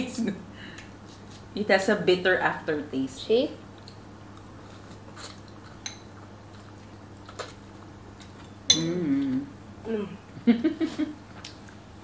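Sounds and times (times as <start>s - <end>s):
person humming: 8.7s - 10.4s.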